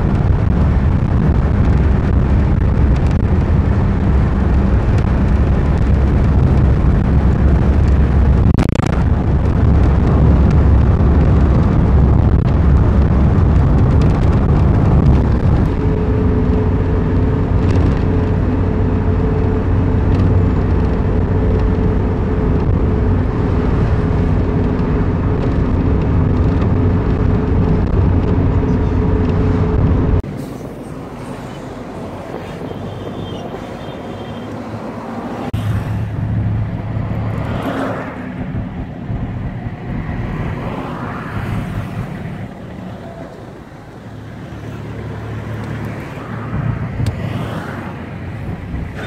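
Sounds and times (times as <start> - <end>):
vehicle engine droning: 0.0 - 49.0
vehicles passing by: 0.0 - 49.0.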